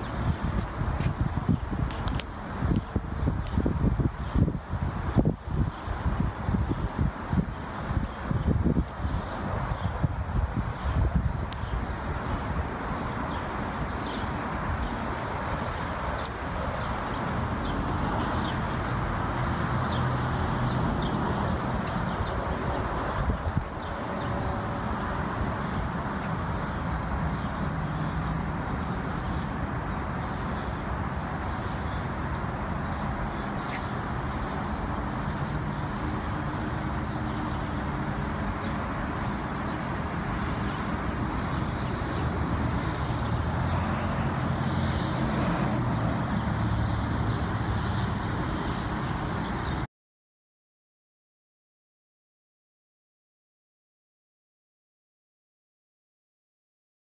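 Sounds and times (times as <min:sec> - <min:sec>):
distant road traffic: 0:00.0 - 0:49.9.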